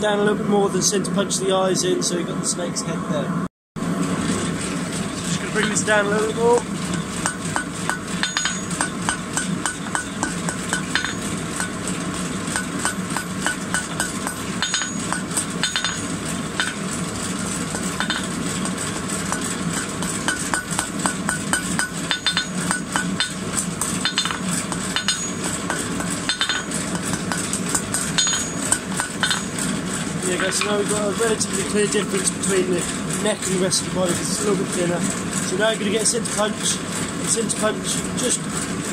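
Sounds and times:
hammer striking hot metal on anvil: 5.5s - 31.1s.

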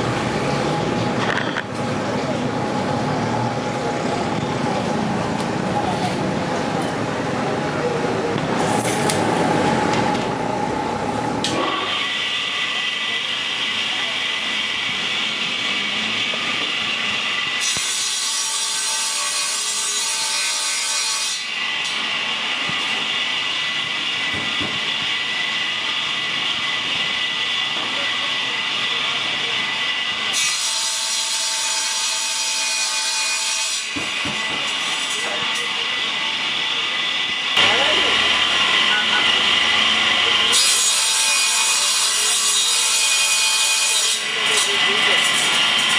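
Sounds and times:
table saw whine: 8.6s - 45.9s
saw blade cutting board: 11.4s - 36.0s, 37.0s - 45.9s.

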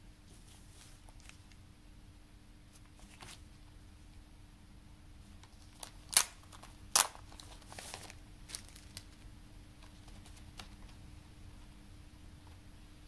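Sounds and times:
plastic wrapping crinkling: 5.4s - 11.0s.

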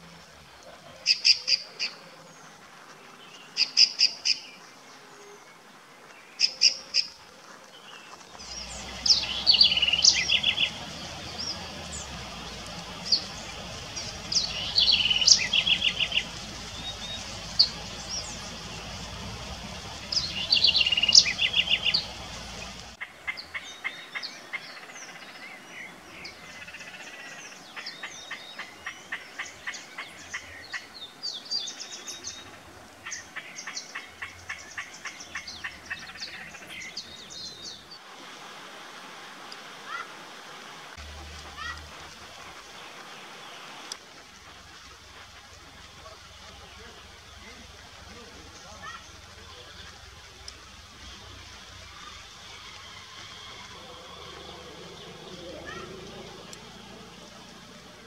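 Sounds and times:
bird calling rapid sharp notes: 8.4s - 23.0s
bird singing with trills: 8.4s - 23.0s
low steady rumble: 8.4s - 23.0s.

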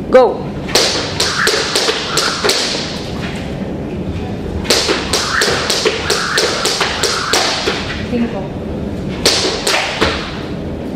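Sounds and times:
sharp taps and thumps: 4.7s - 8.0s.

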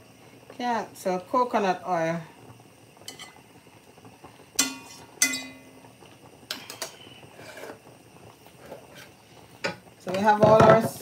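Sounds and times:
kitchenware clinking: 4.6s - 5.8s, 8.6s - 11.0s
spoon knocking on metal pot: 4.6s - 5.8s.

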